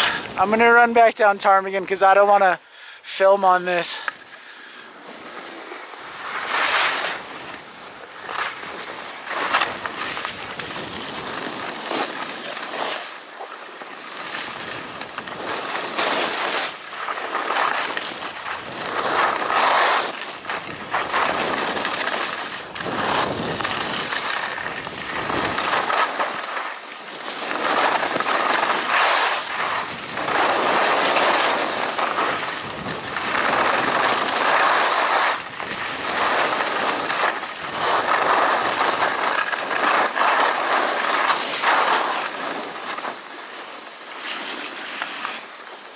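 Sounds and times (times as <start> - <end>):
skis scraping over packed snow: 0.0 - 45.9
wind rushing over microphone: 22.6 - 26.0, 29.5 - 34.6.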